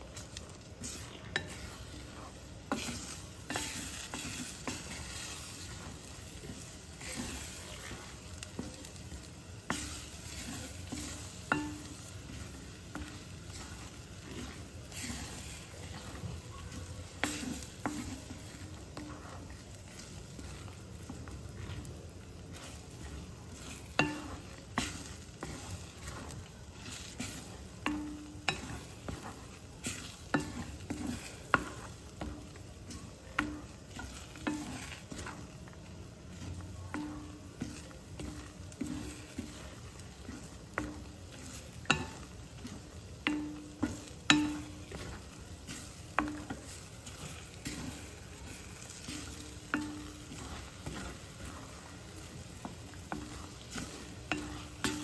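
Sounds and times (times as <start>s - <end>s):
frying sizzle: 0.0s - 55.0s.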